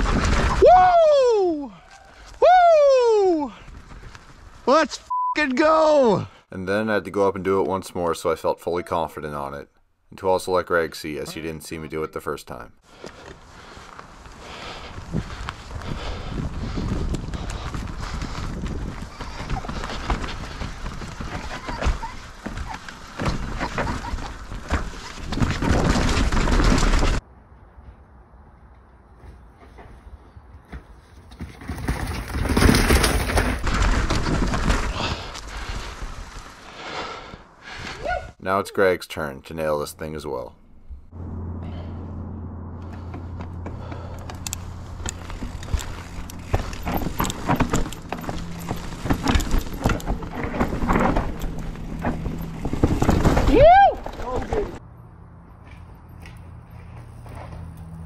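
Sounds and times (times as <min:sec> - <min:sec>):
bike rattling: 0:00.0 - 0:01.1, 0:12.9 - 0:27.2, 0:31.0 - 0:37.8, 0:42.8 - 0:54.8
bike tyres rumbling over roots: 0:00.0 - 0:01.2, 0:03.4 - 0:04.8, 0:12.8 - 0:27.2, 0:31.2 - 0:38.1, 0:42.9 - 0:54.8
low hum: 0:40.5 - 0:53.2.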